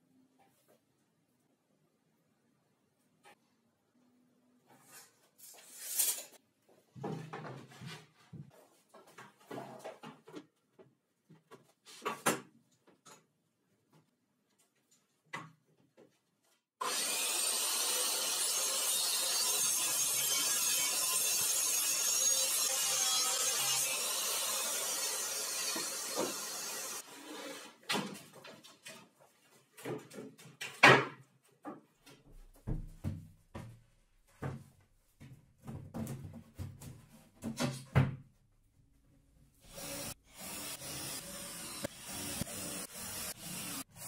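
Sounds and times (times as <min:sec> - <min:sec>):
circular saw cutting board: 0:16.8 - 0:27.8.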